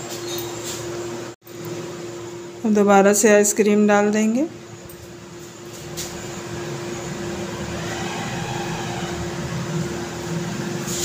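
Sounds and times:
steady mechanical hum: 0:00.0 - 0:11.0
rumbling noise: 0:05.8 - 0:11.0.

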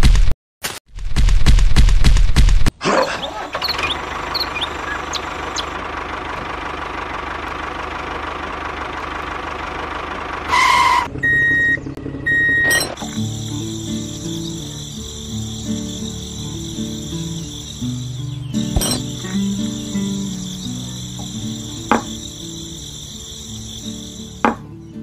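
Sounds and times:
toy tractor engine sound: 0:02.8 - 0:24.6
short beeps: 0:11.2 - 0:13.1.

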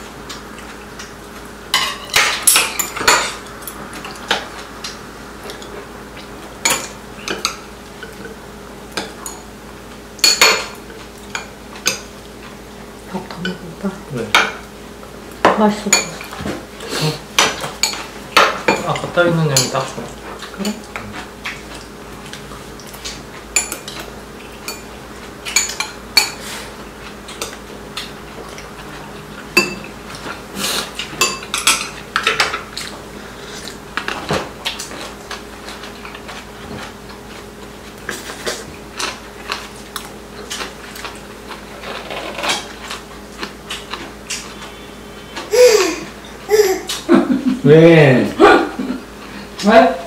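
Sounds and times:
utensils clinking on ceramic bowls: 0:01.7 - 0:04.2, 0:17.4 - 0:20.0, 0:29.6 - 0:29.9, 0:31.2 - 0:32.6.

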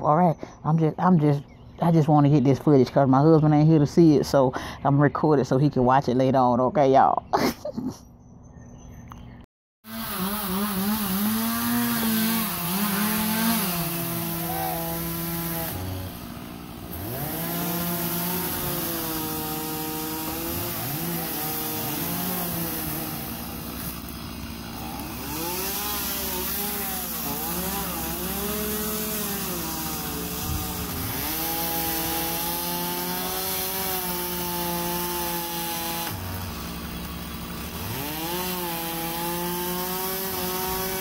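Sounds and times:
chainsaw revving and cutting: 0:09.8 - 0:41.0.

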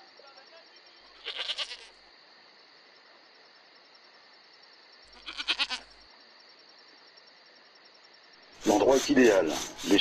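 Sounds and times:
goat bleating: 0:01.1 - 0:02.0, 0:05.1 - 0:06.0.

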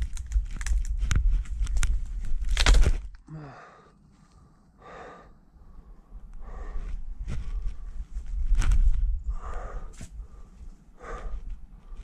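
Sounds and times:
twigs crackling underfoot: 0:00.0 - 0:03.3, 0:06.9 - 0:10.8
person grunting: 0:03.2 - 0:03.8
person breathing hard: 0:03.2 - 0:08.1, 0:09.2 - 0:12.0.

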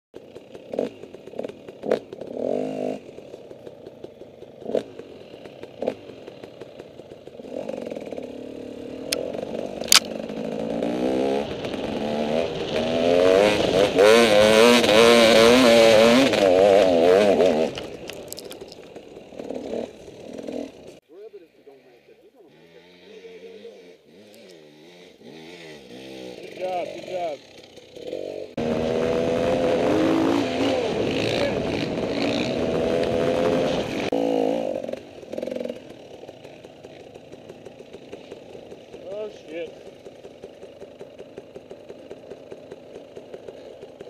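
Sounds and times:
off-road vehicle engine running: 0:00.2 - 0:44.0.

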